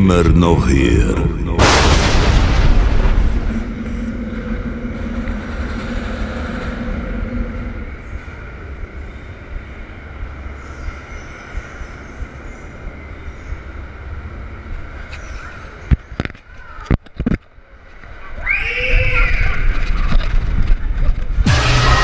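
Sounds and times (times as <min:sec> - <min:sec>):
low droning tone: 0:01.0 - 0:10.8
roller coaster wheels rumbling on track: 0:01.6 - 0:21.5.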